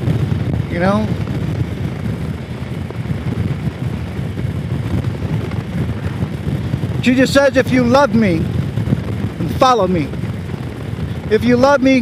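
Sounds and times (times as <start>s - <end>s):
motorcycle engine cruising: 0.0s - 12.0s
wind on microphone: 0.0s - 12.0s.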